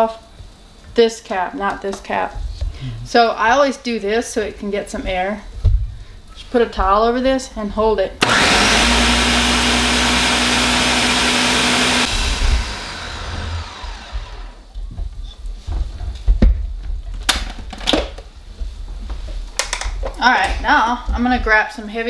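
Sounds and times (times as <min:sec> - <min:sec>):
blender running: 0:08.2 - 0:14.7.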